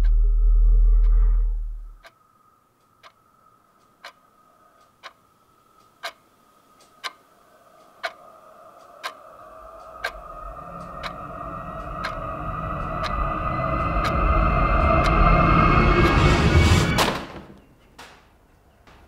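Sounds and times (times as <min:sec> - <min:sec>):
deep low rumble: 0:00.0 - 0:02.0, 0:09.0 - 0:17.2
wall clock ticking: 0:02.8 - 0:03.2, 0:03.8 - 0:16.2
faint high held tone: 0:08.9 - 0:17.0.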